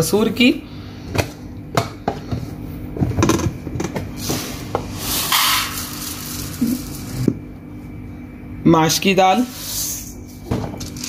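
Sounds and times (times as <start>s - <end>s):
dry lentils rattling: 5.0s - 7.3s.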